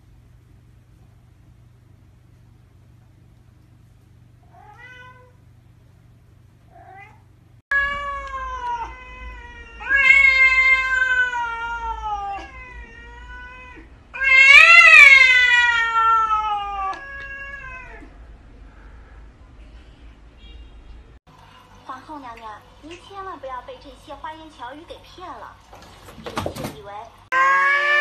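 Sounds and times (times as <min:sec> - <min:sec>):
cat meowing: 0:04.4 - 0:05.4, 0:06.7 - 0:18.2, 0:27.3 - 0:28.0
cat yowling: 0:04.5 - 0:05.4, 0:06.7 - 0:18.2, 0:27.3 - 0:28.0.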